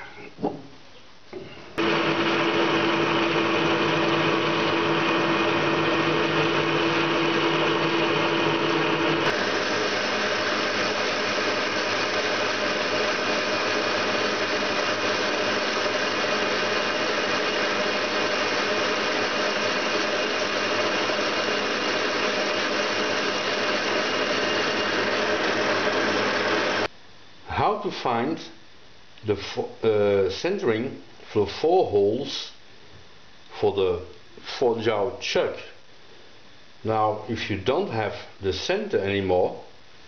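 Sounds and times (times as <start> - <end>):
drill boring into metal: 1.8 - 26.9
lathe tool cutting metal: 1.8 - 26.9.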